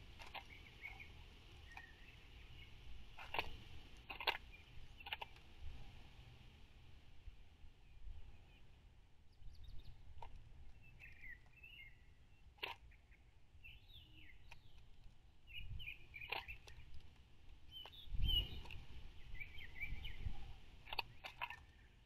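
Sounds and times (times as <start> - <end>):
songbirds chirping: 0.0 - 22.0
wind rumble on microphone: 15.5 - 16.9, 17.7 - 21.4.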